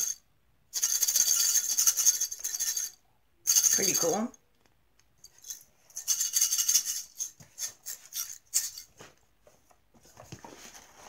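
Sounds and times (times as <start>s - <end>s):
faint rustling: 7.3s - 11.0s.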